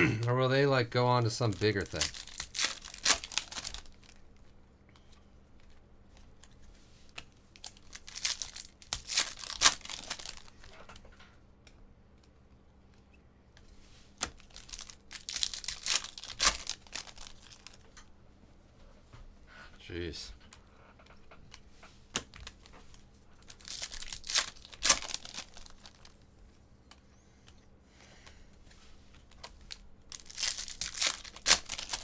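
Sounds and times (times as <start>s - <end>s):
card pack wrappers tearing: 1.0s - 4.2s, 7.6s - 10.7s, 14.2s - 17.8s, 23.4s - 26.2s, 29.4s - 32.0s.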